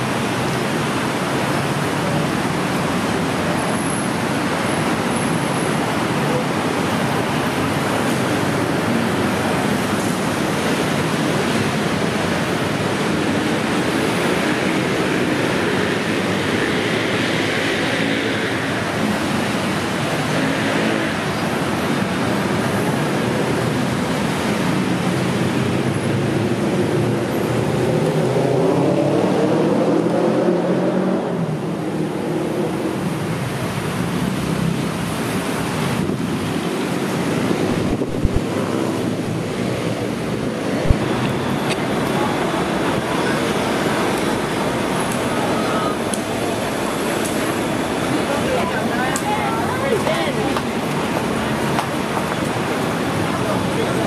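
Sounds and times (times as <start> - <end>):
busy city traffic hum: 0.0 - 54.0.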